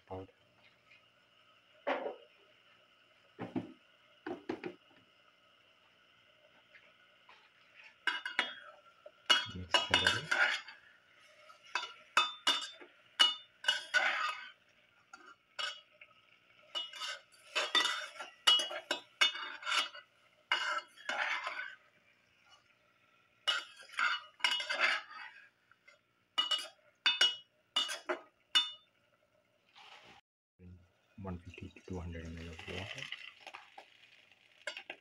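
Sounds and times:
metal spoon scraping pot: 9.3 - 15.9, 16.7 - 21.8, 23.5 - 25.4.

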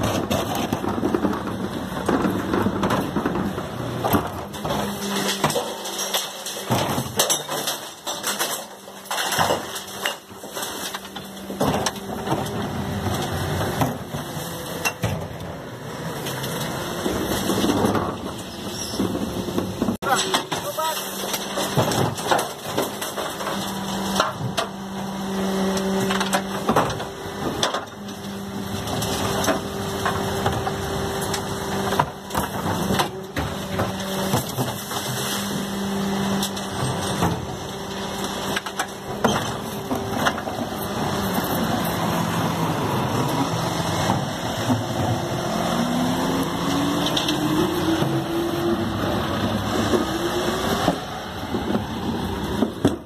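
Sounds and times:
hydraulics humming: 0.0 - 53.0
truck engine revving: 23.3 - 52.8.

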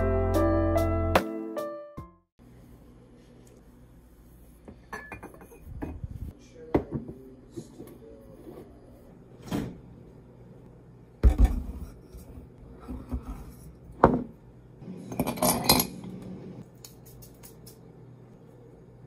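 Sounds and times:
kitchenware clatter: 4.8 - 6.1, 11.2 - 16.2.

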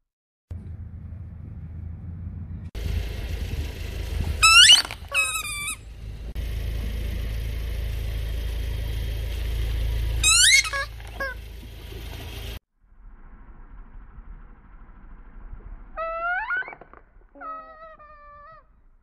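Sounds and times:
car engine running slowly: 0.5 - 16.1
rubber chicken toy squawking: 4.4 - 5.8, 10.2 - 11.4, 16.0 - 16.8, 17.4 - 18.6.

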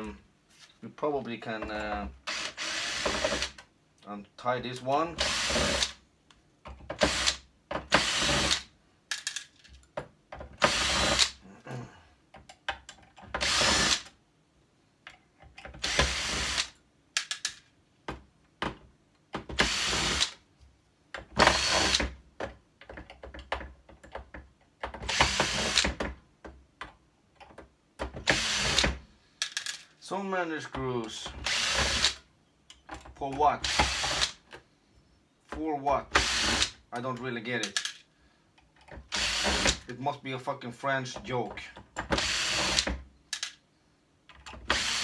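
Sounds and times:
cordless drill running: 2.3 - 3.6, 5.2 - 5.9, 7.0 - 8.6, 10.6 - 11.4, 13.4 - 14.0, 15.8 - 16.7, 19.6 - 20.3, 21.4 - 22.1, 25.1 - 26.0, 28.3 - 29.0, 31.4 - 32.2, 33.7 - 34.4, 36.2 - 36.8, 39.1 - 39.8, 42.1 - 42.9, 44.7 - 45.0.

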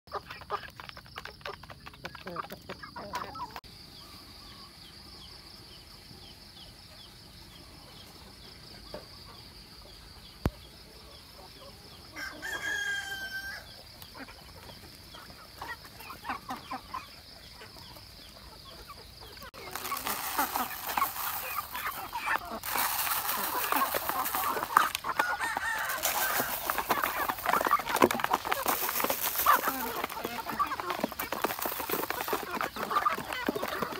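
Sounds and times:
chickens scuffling: 0.1 - 3.7, 10.8 - 33.9
chickens clucking: 0.1 - 4.6, 6.2 - 33.9
rooster crowing: 12.1 - 13.8, 25.2 - 27.0.

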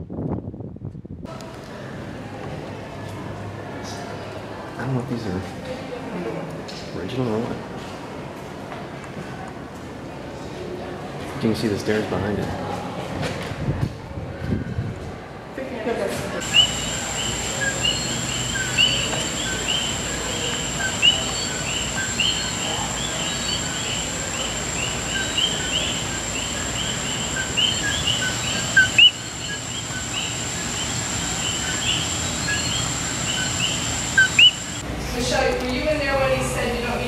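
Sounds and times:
frogs chorus of two-note calls: 16.4 - 34.6
high-pitched whine: 16.4 - 35.5.

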